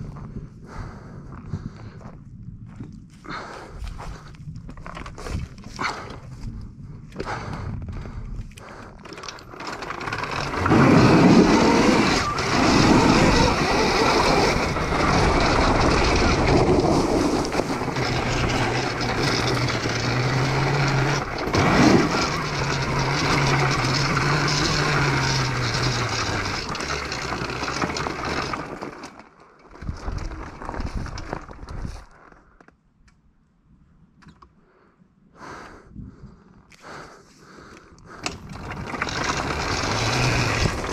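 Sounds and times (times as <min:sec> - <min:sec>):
bike rattling: 0:03.8 - 0:32.6, 0:37.6 - 0:40.9
tyres crunching on gravel: 0:09.4 - 0:29.2, 0:38.5 - 0:40.9.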